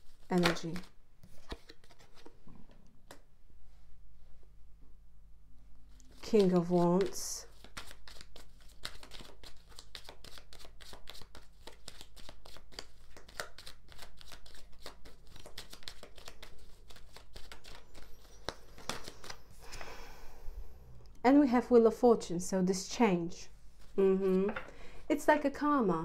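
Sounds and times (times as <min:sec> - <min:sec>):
faint low electrical hum: 0:00.0 - 0:26.0
cards being shuffled: 0:00.1 - 0:02.4, 0:06.0 - 0:19.8.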